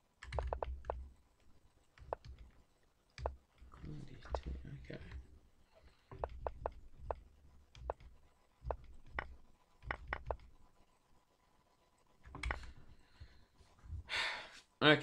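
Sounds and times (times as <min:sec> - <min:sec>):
computer mouse clicks: 0:00.2 - 0:05.2, 0:05.8 - 0:10.6, 0:12.0 - 0:12.8.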